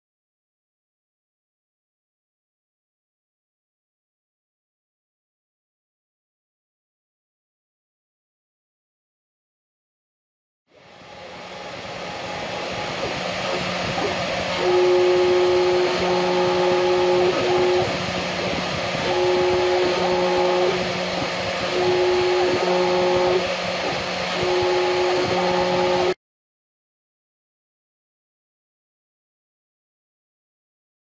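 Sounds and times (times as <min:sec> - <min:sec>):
spindle motor running: 0:10.7 - 0:26.2
stepper motors whining: 0:10.7 - 0:26.2
cutter scraping copper: 0:11.2 - 0:26.2.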